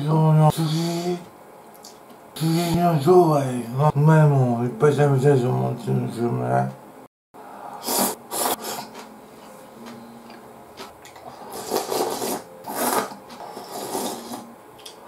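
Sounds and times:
slurping broth: 0:07.7 - 0:09.1, 0:11.1 - 0:14.5
slurping noodles: 0:07.8 - 0:09.1, 0:11.2 - 0:14.5.

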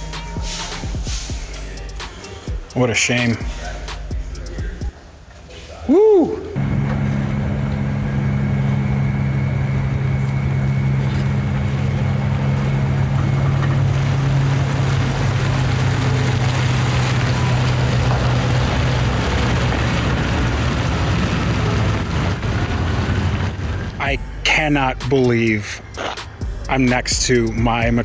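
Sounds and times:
pickup truck engine running: 0:06.6 - 0:28.0.

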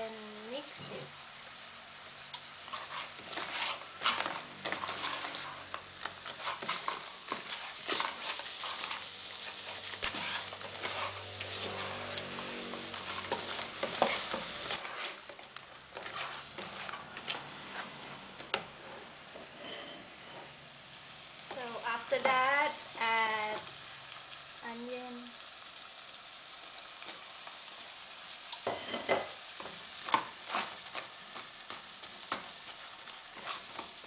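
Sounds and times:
frying sizzle: 0:00.0 - 0:34.0
spatula scraping pot: 0:02.6 - 0:20.5, 0:30.1 - 0:31.1.

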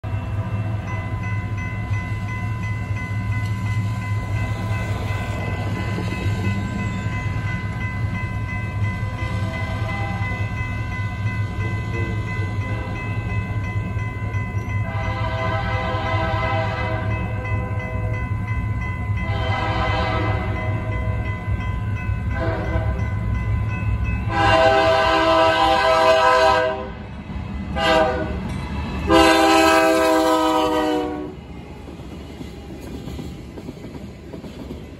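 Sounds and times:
low train rumble: 0:00.0 - 0:34.9
locomotive air horn blasts: 0:14.8 - 0:17.1, 0:19.2 - 0:20.7, 0:22.3 - 0:23.0, 0:24.3 - 0:27.0, 0:27.8 - 0:28.4, 0:29.1 - 0:31.4.

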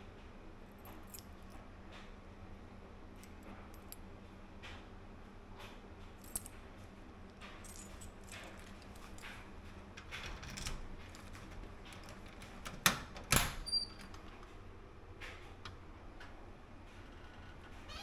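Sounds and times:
key scraping and turning in lock: 0:07.7 - 0:14.3.

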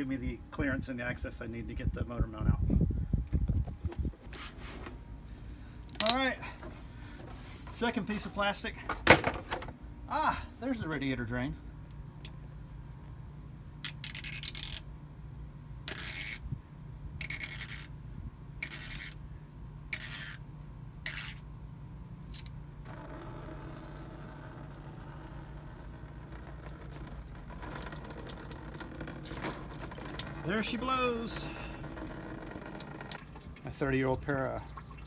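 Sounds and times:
metal valve scraping rasps: 0:15.9 - 0:16.4, 0:17.2 - 0:17.9, 0:19.9 - 0:20.4.

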